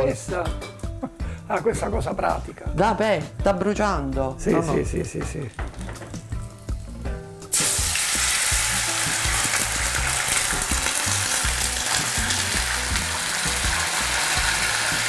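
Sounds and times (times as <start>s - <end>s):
sauce sizzling in hot oil: 5.5s - 15.0s.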